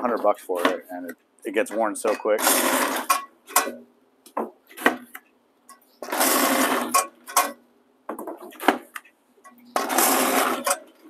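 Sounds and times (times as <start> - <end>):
harsh rasping cut of cardboard: 2.4 - 3.1, 6.0 - 7.0, 9.8 - 10.8.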